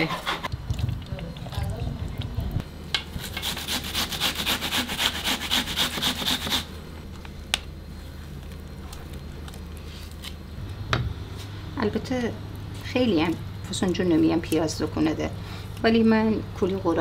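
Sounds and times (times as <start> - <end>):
onion grating on grater: 0.0 - 0.5, 3.2 - 6.7.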